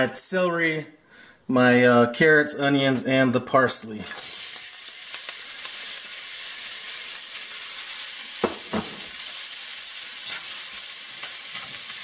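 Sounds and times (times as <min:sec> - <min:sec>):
vegetables sizzling in hot oil: 0:04.1 - 0:12.0.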